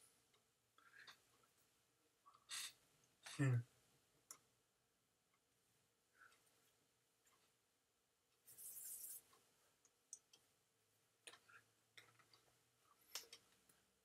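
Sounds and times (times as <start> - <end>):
soft hiss: 5.3 - 14.0
hands brushing clothing: 8.5 - 9.3.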